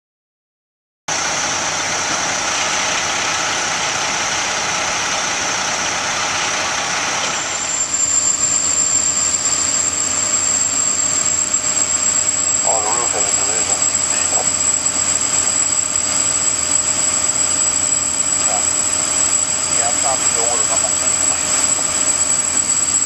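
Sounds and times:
fire truck engine running: 0:01.1 - 0:23.0
high hydraulic whine: 0:01.1 - 0:23.0.

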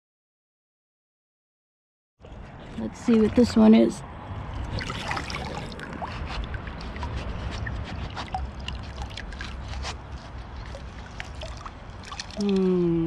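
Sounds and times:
river water trickling and splashing: 0:02.2 - 0:13.0
small drips and ticks: 0:04.8 - 0:13.0.

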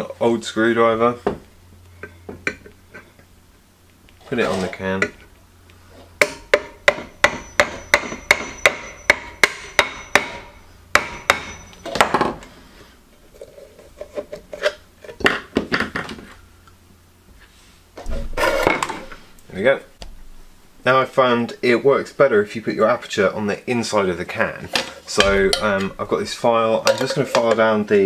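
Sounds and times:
faint ringing tone: 0:07.0 - 0:12.1.

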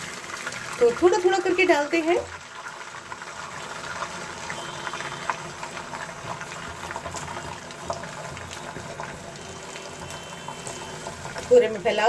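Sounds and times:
egg sizzling in hot oil: 0:00.0 - 0:12.0.

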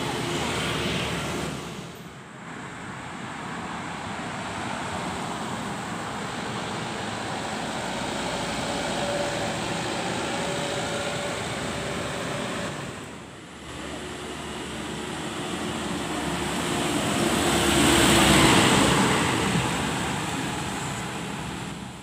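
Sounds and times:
truck driving past: 0:00.0 - 0:02.2, 0:04.8 - 0:22.0
steady traffic noise: 0:00.0 - 0:22.0.

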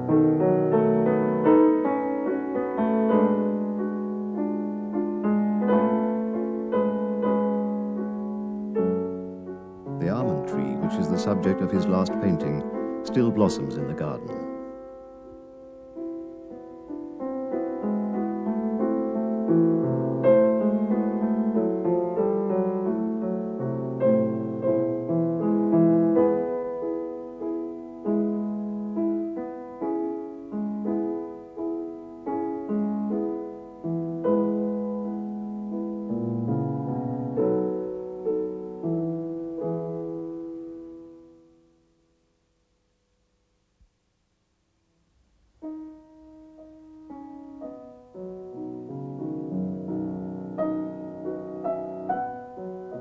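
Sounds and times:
solo piano piece: 0:00.0 - 0:42.4, 0:45.4 - 0:53.0.

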